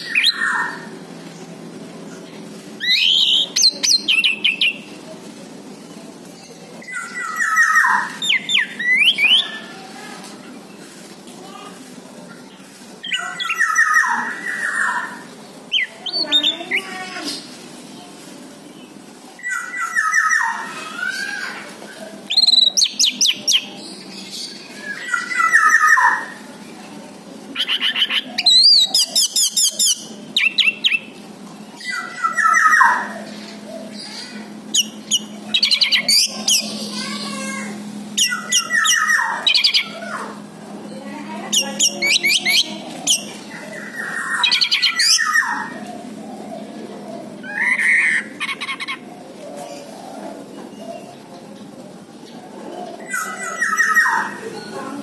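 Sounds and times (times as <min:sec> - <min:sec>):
thrush singing trills and whistles: 0:00.0 - 0:00.9, 0:02.8 - 0:04.9, 0:06.8 - 0:09.7, 0:38.1 - 0:40.0.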